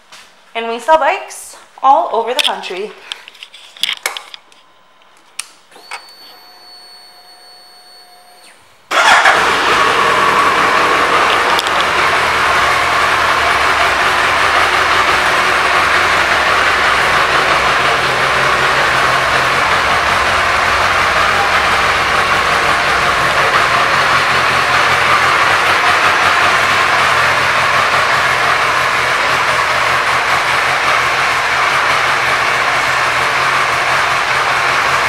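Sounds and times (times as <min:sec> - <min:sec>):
motorcycle engine starting and idling: 0:07.2 - 0:35.0
clicks: 0:11.2 - 0:12.0.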